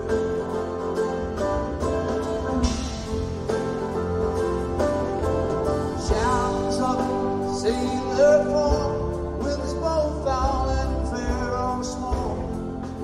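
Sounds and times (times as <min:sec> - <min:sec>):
drum hits: 0:00.0 - 0:08.0
live band music: 0:00.0 - 0:13.0.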